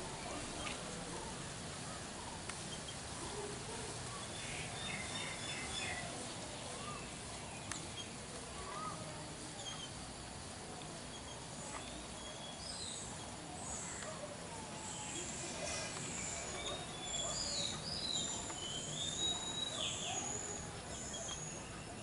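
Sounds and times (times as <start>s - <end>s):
outdoor background hiss: 0.0s - 22.0s
bird chirps and twittering: 4.1s - 10.2s, 11.0s - 22.0s.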